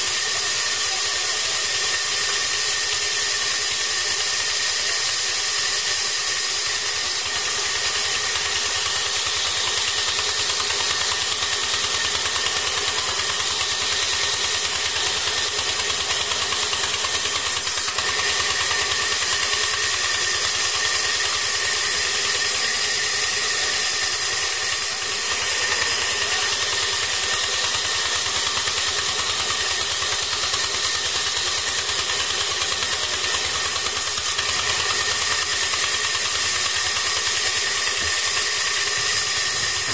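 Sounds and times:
band sawmill drone with hiss: 0:00.0 - 0:39.9.

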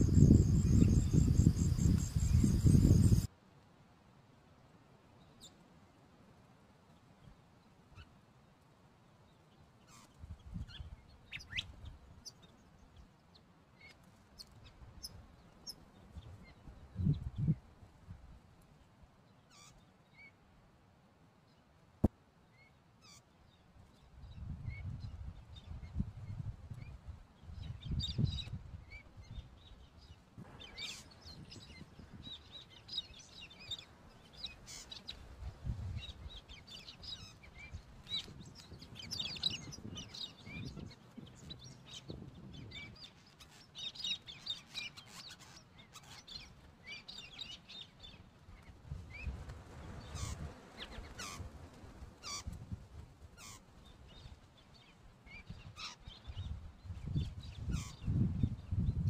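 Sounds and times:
birds chirping and twittering: 0:00.0 - 0:03.3, 0:27.6 - 0:35.2, 0:35.9 - 0:51.5, 0:53.4 - 0:59.0.

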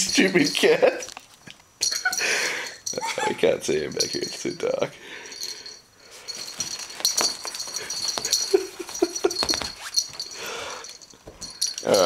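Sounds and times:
plastic bag crinkling: 0:06.4 - 0:10.4.

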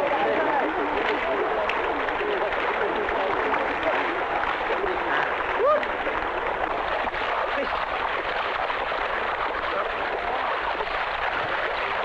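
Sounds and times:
voices: 0:00.0 - 0:07.9, 0:09.3 - 0:12.0
water and mud splashing: 0:00.0 - 0:12.0.

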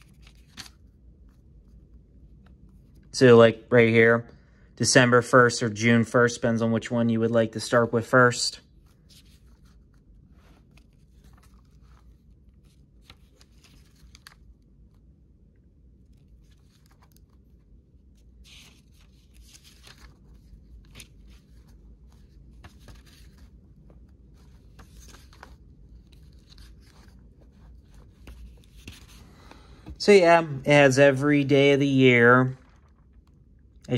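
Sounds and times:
book pages rustling: 0:00.0 - 0:03.1, 0:08.7 - 0:15.1, 0:15.9 - 0:33.8.

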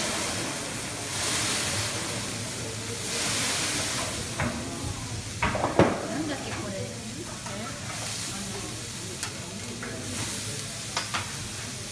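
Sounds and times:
scallops sizzling on a griddle: 0:00.0 - 0:11.9.

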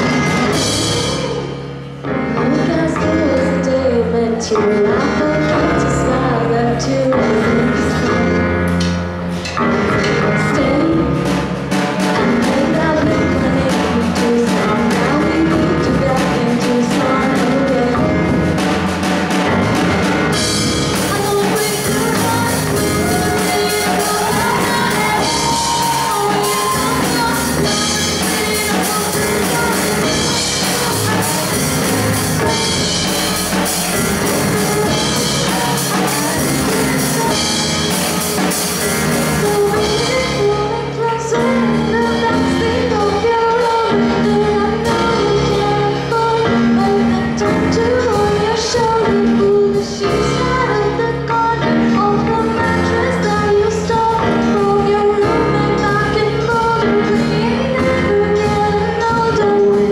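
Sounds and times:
bass guitar: 0:00.0 - 0:59.9
drum kit: 0:00.0 - 0:59.9
keyboard: 0:00.0 - 0:59.9
woman singing lead: 0:00.0 - 0:59.9.

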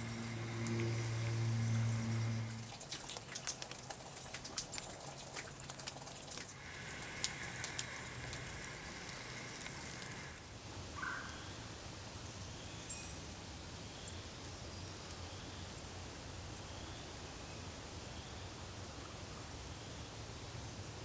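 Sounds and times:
low background rumble: 0:00.0 - 0:10.5.

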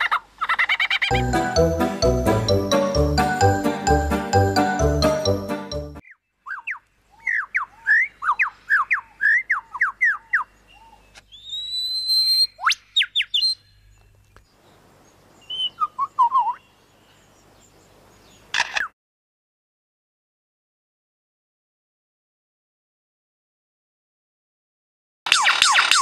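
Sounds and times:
lyrebird singing: 0:06.0 - 0:18.5.

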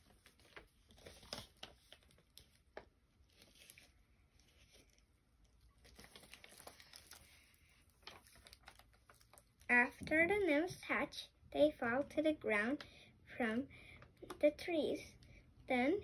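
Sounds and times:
paper pages rustling: 0:00.0 - 0:09.7.

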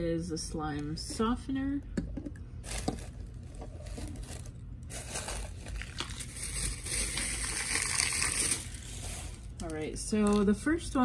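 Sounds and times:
tissue paper rustling: 0:02.7 - 0:09.5.

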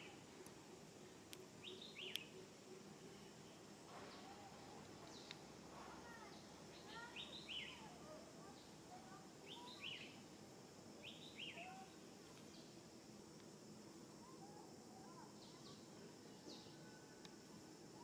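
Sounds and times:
soft low bird chirping: 0:00.0 - 0:05.4.

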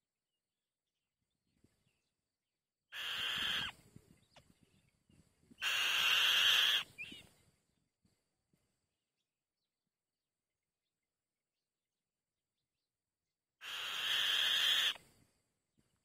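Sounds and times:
bird nestlings screeching: 0:03.0 - 0:03.7, 0:05.6 - 0:07.2, 0:13.6 - 0:15.0.

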